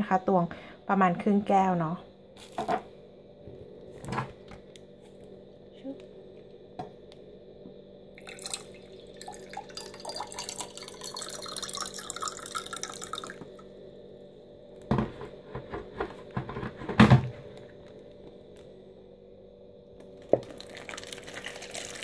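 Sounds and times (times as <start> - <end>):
water pouring into a glass: 8.2 - 13.6, 20.4 - 22.0.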